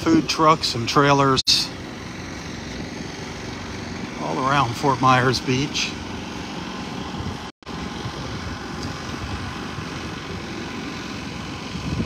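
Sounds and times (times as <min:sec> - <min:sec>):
wind buffeting microphone: 0:06.9 - 0:12.0.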